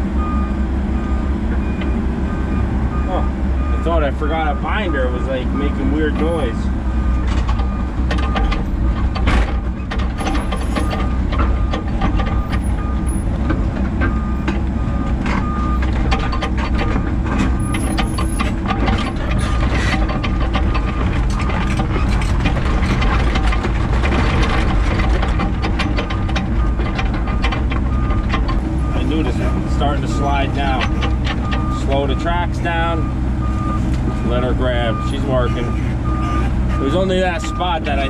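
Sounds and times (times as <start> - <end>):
diesel engine under load: 0.0 - 38.0
tracks clanking and crunching: 0.0 - 38.0
travel alarm beeping: 17.6 - 18.5.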